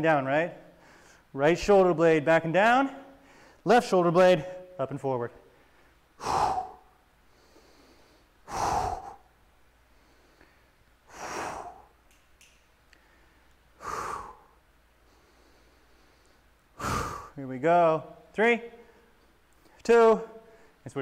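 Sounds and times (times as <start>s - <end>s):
man exhaling forcefully: 6.2s - 7.0s, 8.4s - 9.4s, 11.1s - 12.0s, 13.8s - 14.6s, 16.8s - 17.4s.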